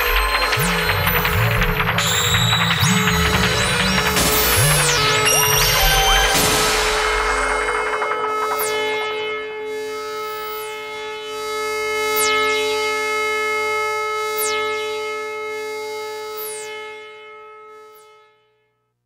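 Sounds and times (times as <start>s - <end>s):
high falling synth sweep: 0.0s - 11.5s
synthesizer drone chord: 0.0s - 12.7s.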